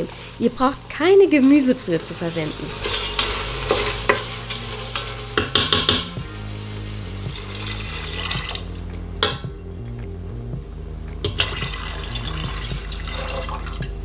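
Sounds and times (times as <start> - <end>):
water pouring and splashing: 6.2 - 9.0, 11.2 - 14.0.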